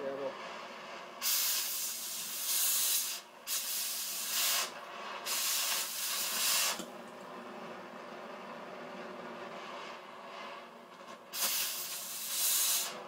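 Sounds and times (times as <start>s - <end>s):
cutting torch hissing bursts: 0.0s - 6.9s, 9.6s - 13.0s
flame soft steady hiss: 0.0s - 13.0s.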